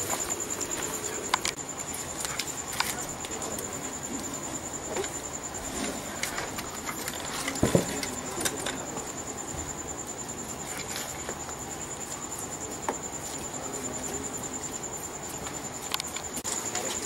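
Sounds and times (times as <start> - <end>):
high-pitched pulsing insect trill: 0.0 - 17.0
scattered clicks: 1.2 - 3.8, 14.7 - 17.0.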